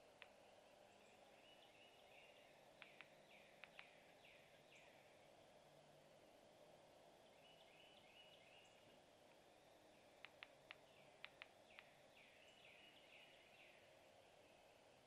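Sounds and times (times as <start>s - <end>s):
distant songbirds: 0.0s - 5.4s, 7.1s - 15.0s
sharp clicks: 2.8s - 4.0s, 10.2s - 11.9s.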